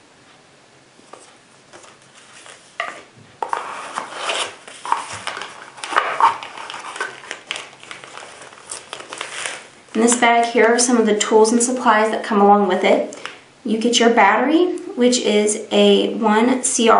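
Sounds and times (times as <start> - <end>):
cardboard and foam rustling: 1.0 - 10.8.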